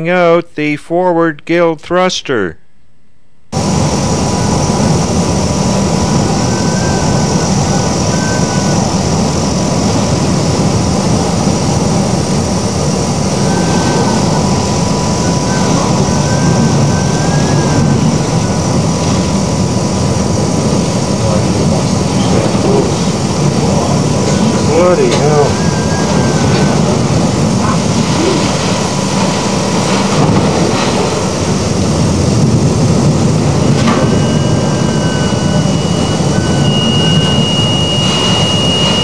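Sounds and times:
ship running noise: 3.5 - 39.0
storm wind and heavy seas: 3.6 - 39.0
faint wavering whistle: 6.3 - 8.9, 15.2 - 18.6, 25.4 - 26.9, 33.9 - 39.0.

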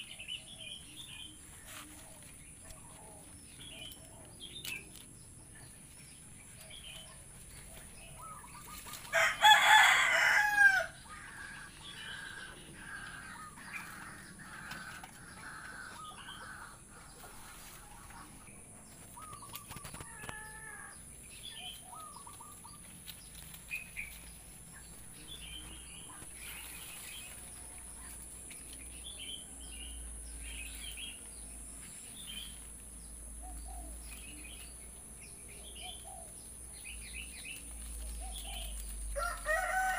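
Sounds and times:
small birds chirping: 0.0 - 39.9
rooster crowing: 9.1 - 13.5, 39.2 - 39.9.

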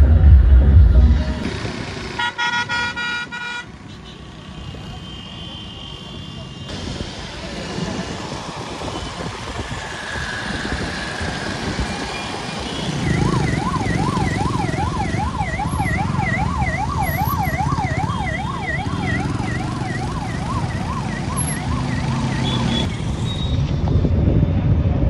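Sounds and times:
traffic rumble: 0.0 - 25.0
electronic siren yelping: 12.9 - 22.9.

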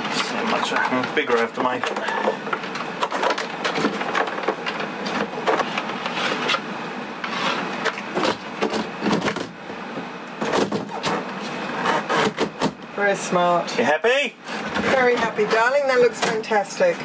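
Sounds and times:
rustling and rubbing: 5.0 - 6.6, 7.2 - 7.8.

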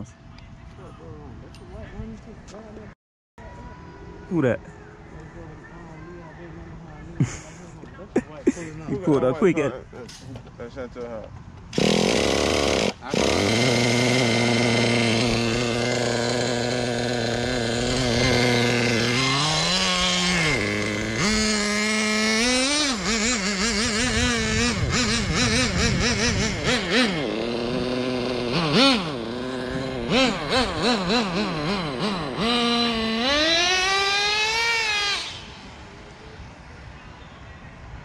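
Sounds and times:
model car engine revving: 11.7 - 36.7.

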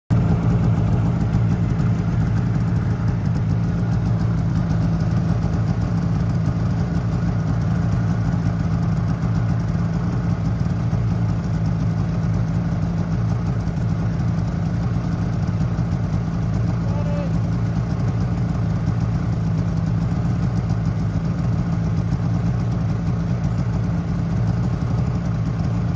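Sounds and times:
snowmobile engine idling: 0.1 - 25.9.

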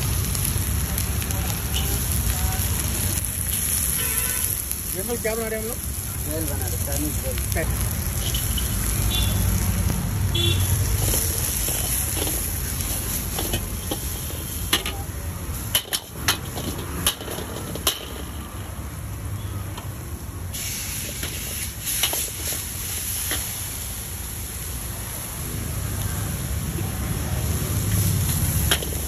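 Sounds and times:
vegetables sizzling: 0.0 - 29.0
ladle scraping a wok: 10.8 - 14.7.

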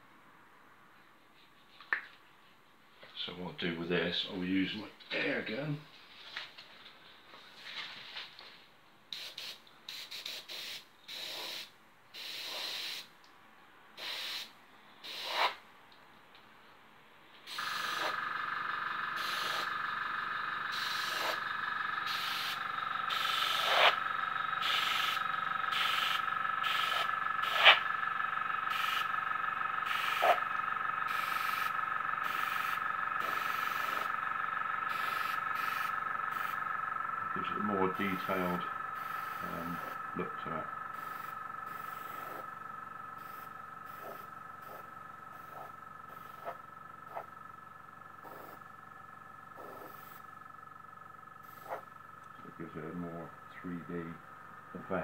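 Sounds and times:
air gun blowing bursts of air: 9.1 - 13.1, 14.0 - 15.6, 17.4 - 18.3, 19.2 - 19.8, 20.7 - 27.9, 28.6 - 29.1, 29.8 - 30.5, 31.1 - 34.2, 34.9 - 36.7, 37.9 - 40.0, 40.9 - 42.5, 43.2 - 47.3, 48.2 - 48.6, 49.6 - 50.2, 51.4 - 51.8.

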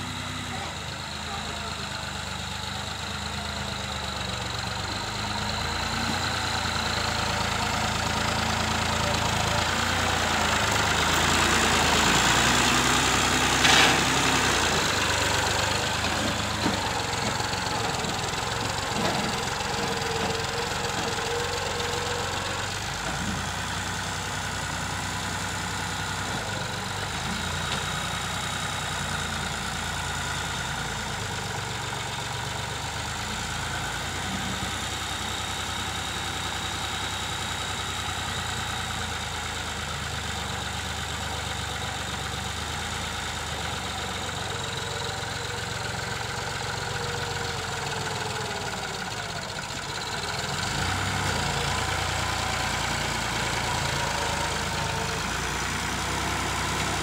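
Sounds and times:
tractor diesel engine running: 0.0 - 57.0.

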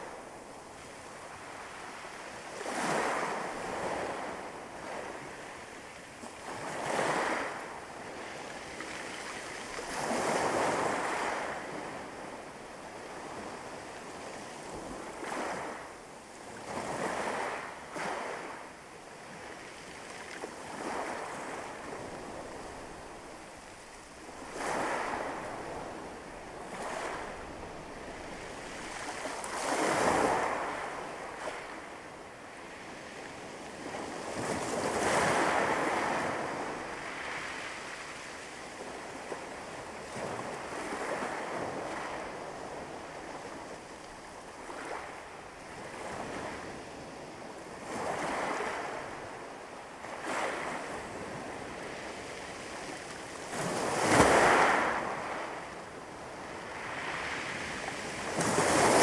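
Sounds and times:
waves breaking on pebble beach: 20.7 - 31.6, 53.5 - 55.4, 56.8 - 59.0.

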